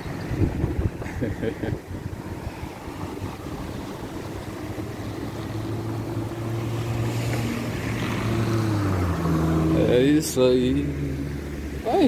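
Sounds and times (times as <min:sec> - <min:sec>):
wind noise on microphone: 0:00.0 - 0:09.3
vehicle engine hum: 0:00.0 - 0:12.0.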